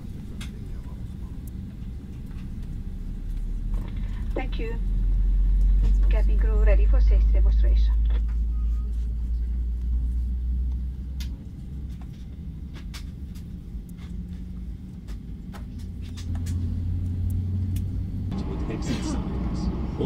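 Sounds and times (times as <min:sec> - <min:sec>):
aircraft cabin rumble while taxiing: 0:00.0 - 0:20.0
low hum: 0:00.0 - 0:20.0
light clicks and rattles: 0:10.6 - 0:18.0.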